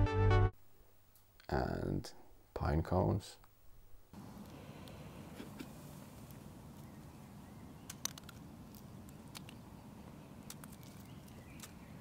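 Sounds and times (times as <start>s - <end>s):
small sharp clicks: 7.9s - 9.6s.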